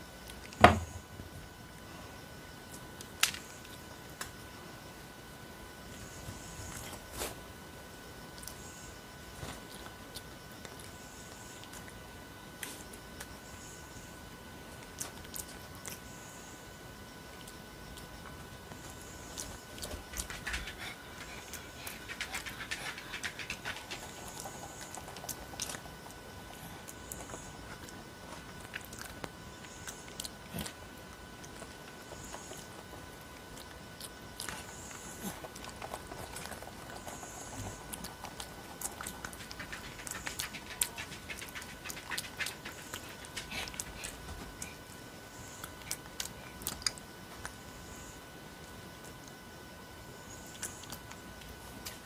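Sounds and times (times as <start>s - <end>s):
faint steady whine: 0.0s - 52.0s.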